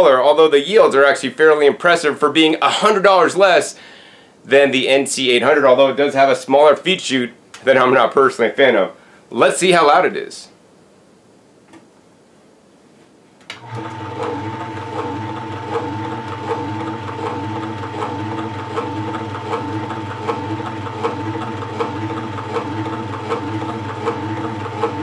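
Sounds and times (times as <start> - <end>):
juicer motor hum and whine: 13.5 - 25.0.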